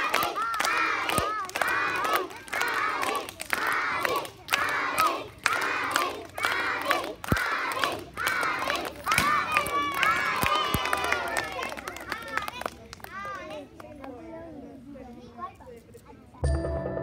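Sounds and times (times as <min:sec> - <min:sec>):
children chanting in unison: 0:00.0 - 0:10.4.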